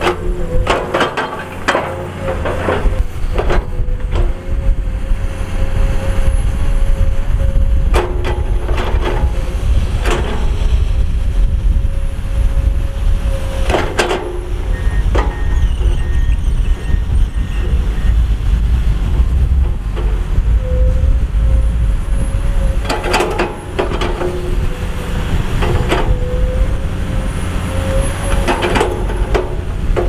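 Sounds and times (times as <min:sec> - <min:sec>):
excavator diesel engine rumbling: 0:00.0 - 0:30.0.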